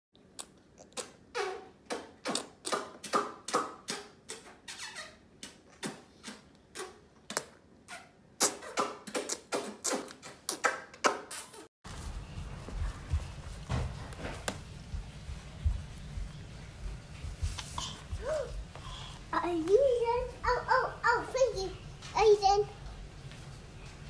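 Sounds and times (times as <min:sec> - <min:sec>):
baby squeaky mouth noises: 0:05.8 - 0:11.5.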